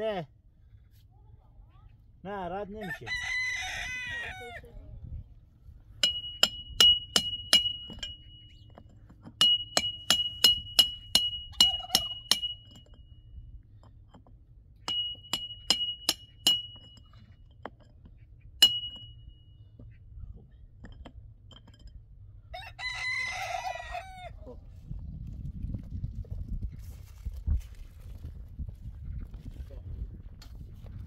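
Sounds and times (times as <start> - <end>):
hammer blows on metal: 6.0 - 8.5, 9.4 - 12.9, 14.9 - 17.0, 18.6 - 19.3.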